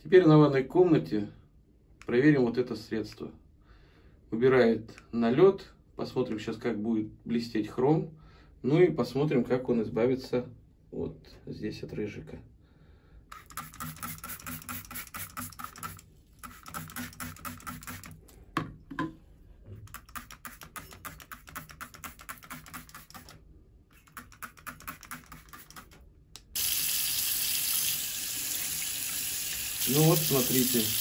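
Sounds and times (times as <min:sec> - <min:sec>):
sponge scrubbing metal: 0:19.9 - 0:23.4
tap water running into sink: 0:26.6 - 0:31.0.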